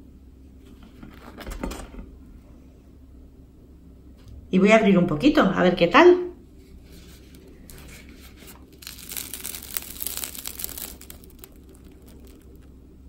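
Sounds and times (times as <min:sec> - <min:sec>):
bread crust crackling: 0:06.8 - 0:13.0.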